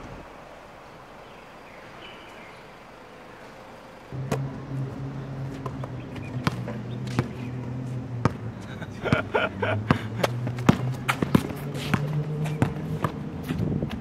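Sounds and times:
low hum: 0.0 - 11.2
basketball bouncing on concrete: 5.4 - 8.5, 9.9 - 14.0.

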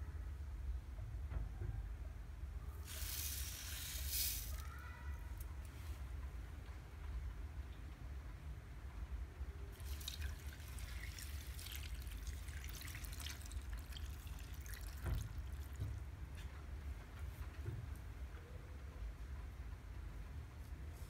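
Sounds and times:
liquid pouring into blender jar: 9.8 - 15.3.

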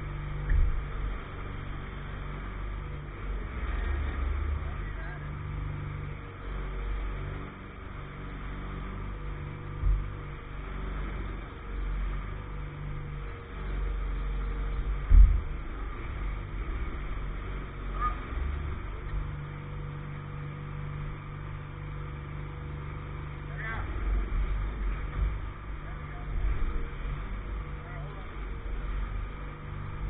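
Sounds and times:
engine idling: 0.0 - 30.0
dull thumps: 9.7 - 10.4, 14.9 - 17.1.

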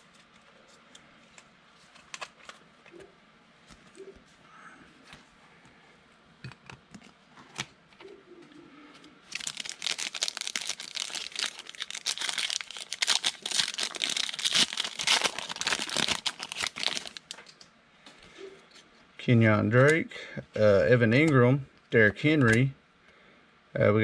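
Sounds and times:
wrapper tearing and crinkling: 9.3 - 17.4.

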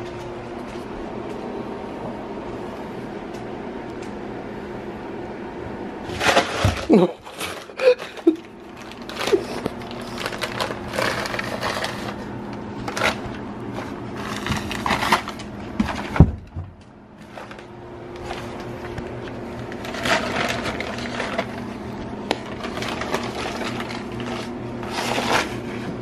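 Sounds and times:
paper bag crinkling and rustling: 6.0 - 16.6, 17.2 - 26.0.

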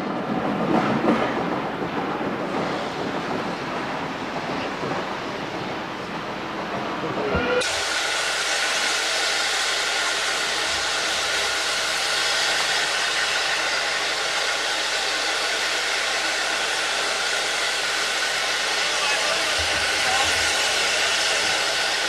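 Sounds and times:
steam locomotive hissing: 2.2 - 22.0.

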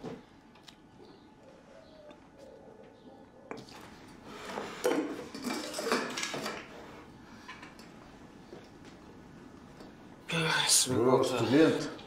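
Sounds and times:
dishes and cutlery clattering: 4.8 - 6.7.

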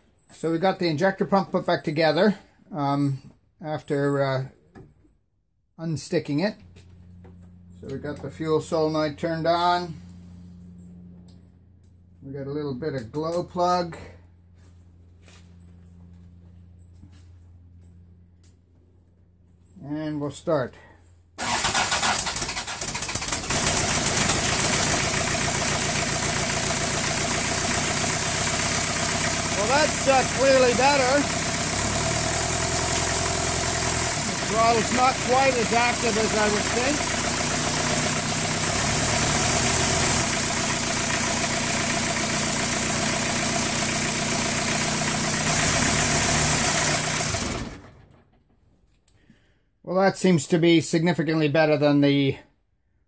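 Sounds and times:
diesel engine starting and idling: 21.4 - 48.5.

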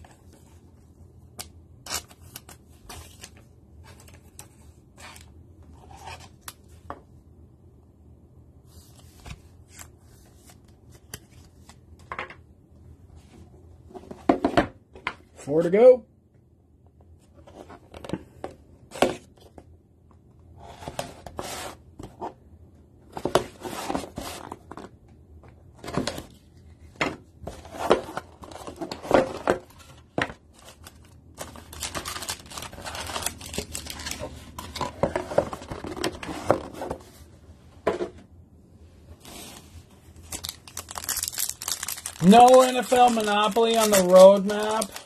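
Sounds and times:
foil packs crinkling: 30.6 - 34.8, 40.2 - 45.0
plastic wrap tearing: 31.6 - 34.2, 40.2 - 45.0.

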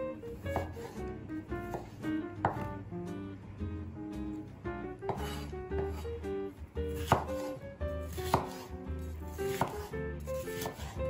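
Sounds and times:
background music: 0.0 - 11.0
knife chopping on wooden board: 0.4 - 2.8, 5.0 - 6.2, 6.9 - 11.0.

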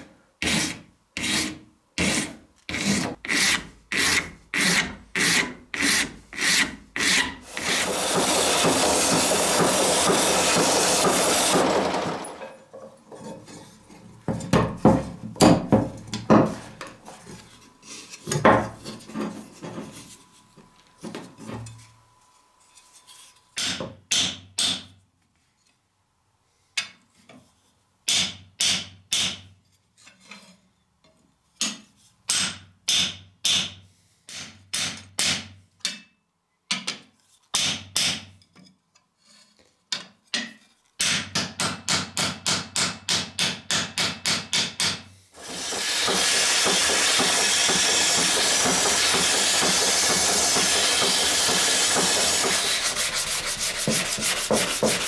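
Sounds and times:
knocks and rubbing of wood: 5.2 - 11.7, 12.8 - 17.4, 45.4 - 55.0.

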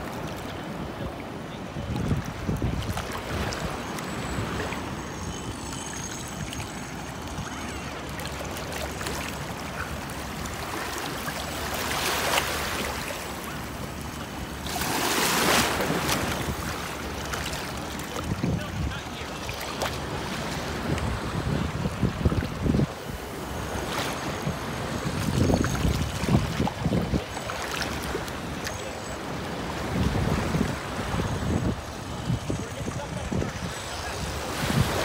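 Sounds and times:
waves lapping at shoreline: 0.0 - 35.0
wind buffeting microphone: 0.8 - 4.6, 20.7 - 23.8, 24.4 - 27.3, 29.8 - 35.0.

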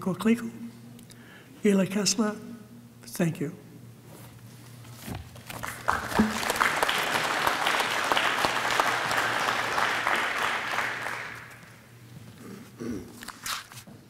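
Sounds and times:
audience applauding: 5.5 - 11.9.

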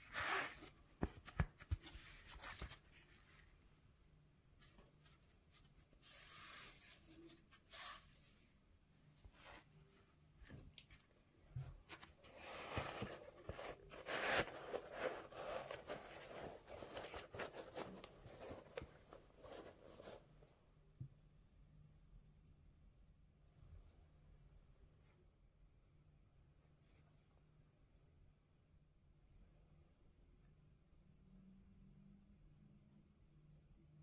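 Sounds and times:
fabric rustling on shoe: 9.1 - 20.4.

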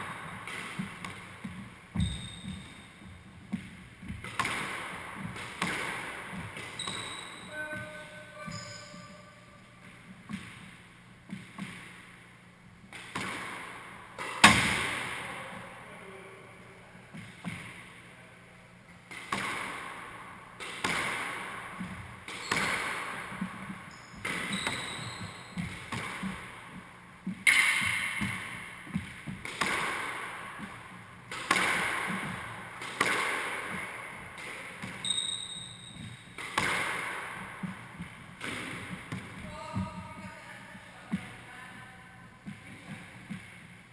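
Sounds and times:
ball hitting court walls: 0.0 - 9.1, 9.8 - 12.1, 12.9 - 15.6, 17.1 - 17.9, 19.1 - 40.4, 42.4 - 43.8
squash racket strikes: 0.0 - 9.3, 12.9 - 15.5, 19.0 - 40.4.

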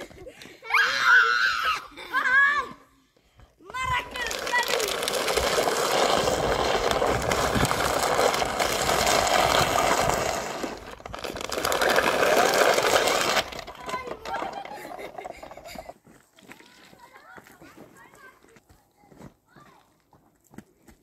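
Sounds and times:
clothing scraping on stone: 3.9 - 15.8.

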